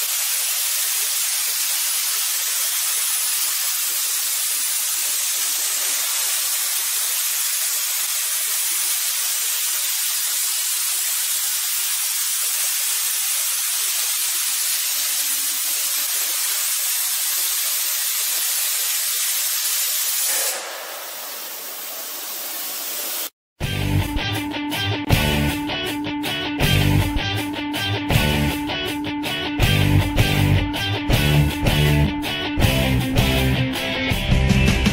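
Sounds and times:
plasma cutting torch hissing: 0.0s - 23.4s.

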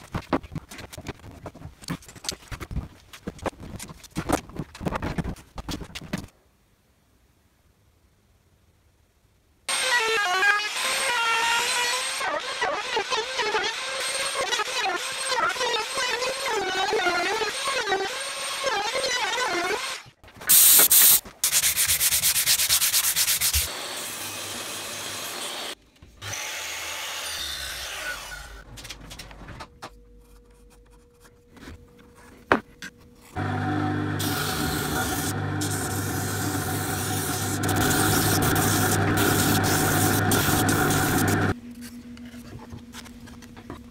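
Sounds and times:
wood being sanded: 33.4s - 41.5s.

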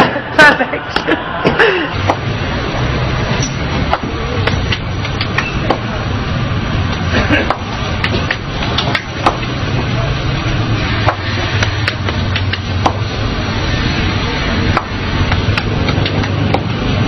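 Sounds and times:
street noise hum: 0.0s - 17.0s.

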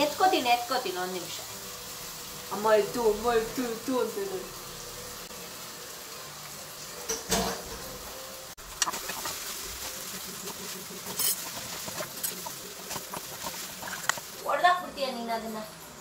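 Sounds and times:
noodles sizzling in frying pan: 0.0s - 16.0s
metal utensil scraping pan: 8.8s - 14.4s.

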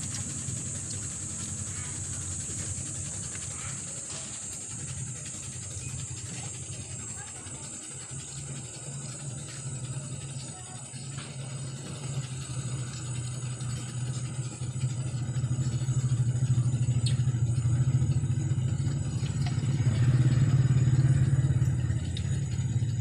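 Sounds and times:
engine droning: 0.0s - 23.0s
faint clicks: 16.6s - 18.2s.

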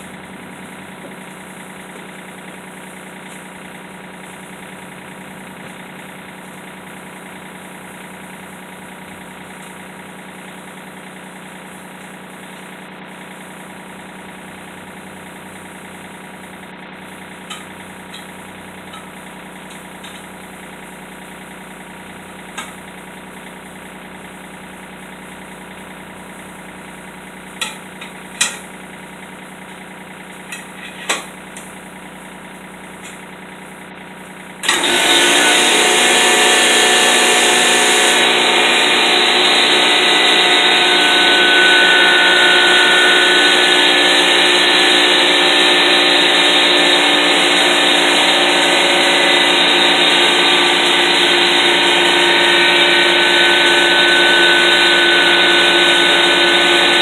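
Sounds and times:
loud machine running: 0.0s - 57.0s
tire irons clinking: 17.4s - 20.6s, 27.5s - 28.8s, 30.2s - 31.8s.

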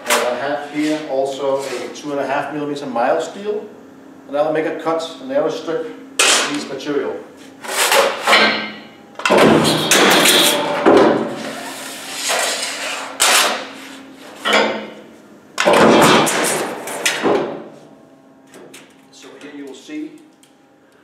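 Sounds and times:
sheet steel clanking and scraping: 9.3s - 13.6s.

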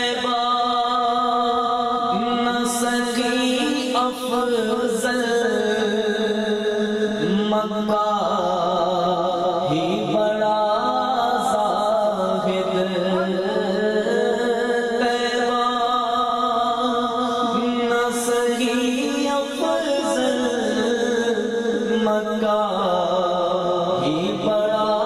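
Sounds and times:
man singing devotional song: 0.0s - 25.0s.

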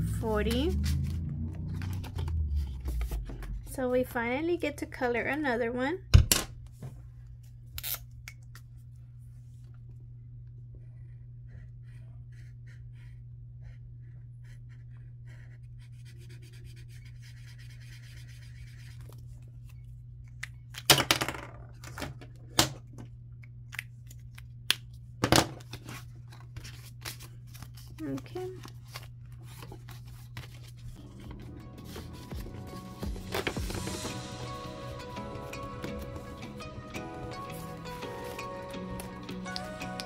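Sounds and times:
steady low hum: 0.0s - 20.7s
paper card rustling: 0.5s - 3.7s, 25.6s - 34.3s, 37.3s - 40.0s
marker scratching on paper: 11.5s - 19.0s.

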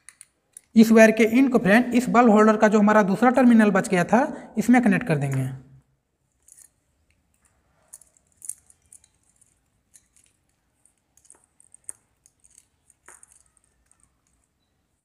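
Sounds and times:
screwdriver clicking and scraping: 6.3s - 14.6s.

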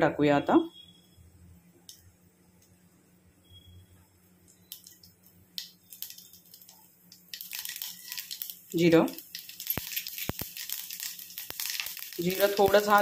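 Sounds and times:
mustard seeds crackling in oil: 4.4s - 13.0s.

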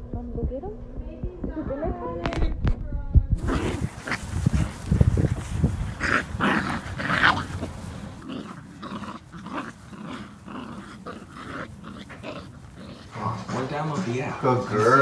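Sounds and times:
puppies growling in play: 3.4s - 15.0s.

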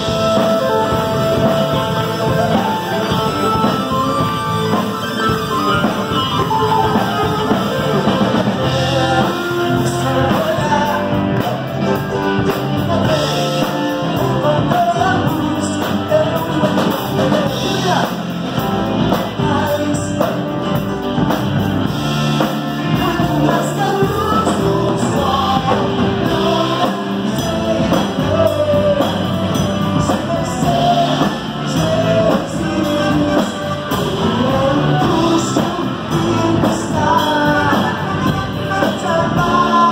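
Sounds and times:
man singing lead: 0.0s - 39.9s
rock band playing: 0.0s - 39.9s
backing singers: 22.4s - 39.9s.

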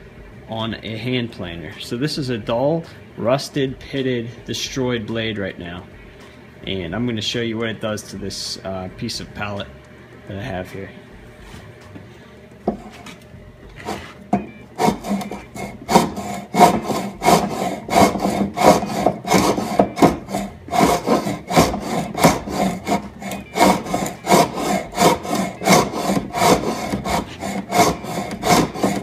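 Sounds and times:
hand plane scraping wood: 12.7s - 14.2s, 14.8s - 29.0s.

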